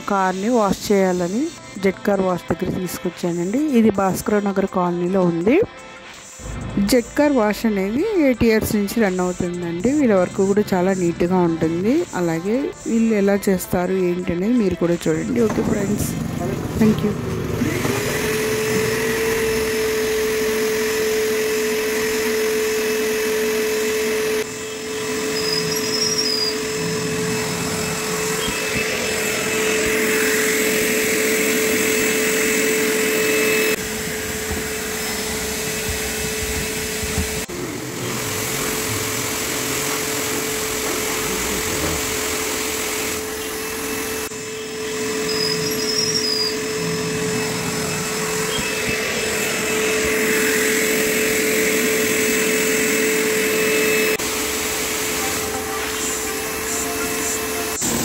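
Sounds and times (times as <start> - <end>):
vacuum cleaner whine: 14.7 - 58.0.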